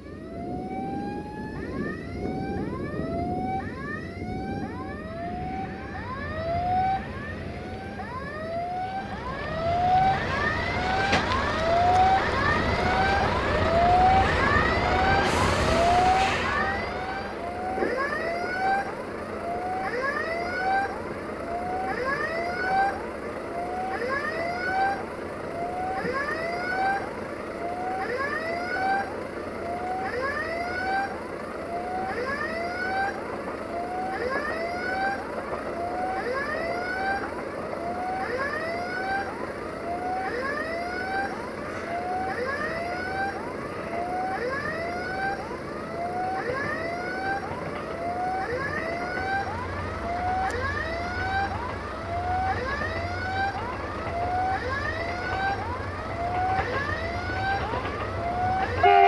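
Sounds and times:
level crossing warning tone: 0.0s - 59.0s
broad rushing noise: 9.0s - 18.0s.

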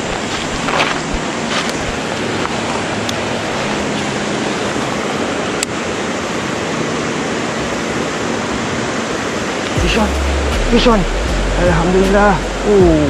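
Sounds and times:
stream running over stones: 0.0s - 9.8s.

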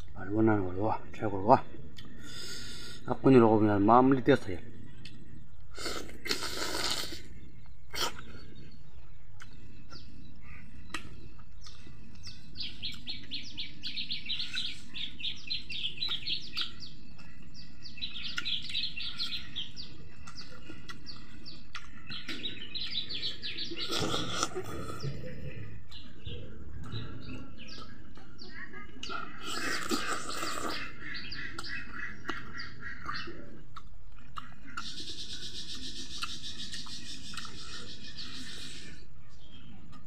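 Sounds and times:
small bird chirping rapidly: 5.0s - 40.0s
person eating: 5.7s - 8.6s, 16.0s - 28.1s, 29.0s - 39.0s.

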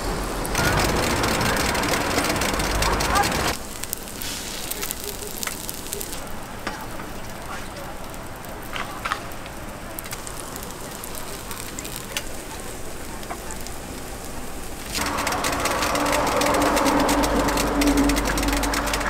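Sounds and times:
batter sizzling on a griddle: 0.1s - 19.0s
steady hum: 9.7s - 19.0s.

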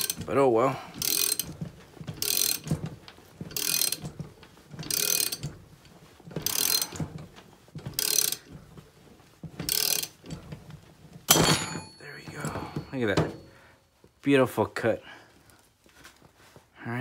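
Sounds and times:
ratchet wrench clicking: 1.0s - 1.4s, 3.6s - 4.0s, 4.9s - 5.4s, 6.4s - 6.9s.

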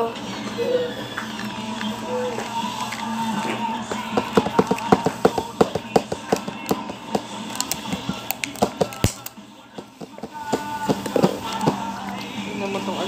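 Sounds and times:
small objects clicking and tapping: 4.2s - 9.4s.

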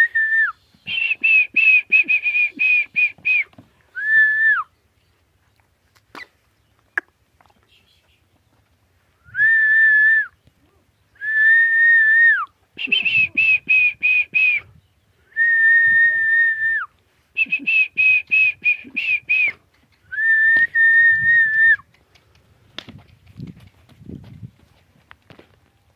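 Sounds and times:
person whistling: 0.0s - 4.7s, 9.2s - 10.3s, 11.2s - 14.7s, 15.4s - 21.8s.

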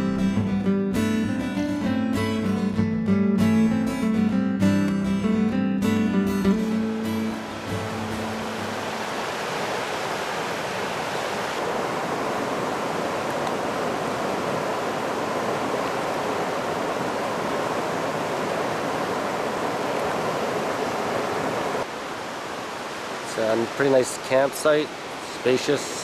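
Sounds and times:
acoustic guitar tune: 0.0s - 8.8s
river rapids rushing over rock: 6.9s - 26.0s.

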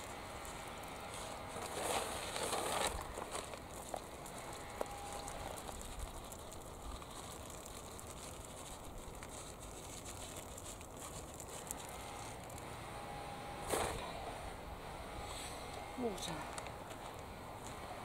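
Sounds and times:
shaker pot clicking and rattling: 0.0s - 12.6s
outdoor background hiss: 0.0s - 18.0s.

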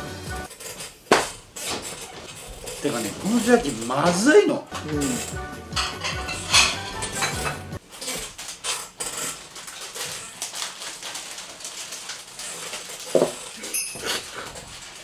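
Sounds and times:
dishes and tableware clinking: 0.7s - 7.8s, 13.1s - 14.3s.

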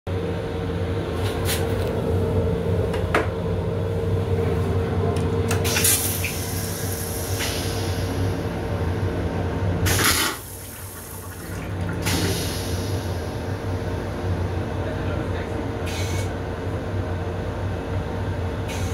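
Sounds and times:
steady mechanical hum: 0.1s - 18.9s
toilet flushing: 5.5s - 8.4s, 9.8s - 13.6s
loud rush of bowl draining: 9.9s - 12.9s.

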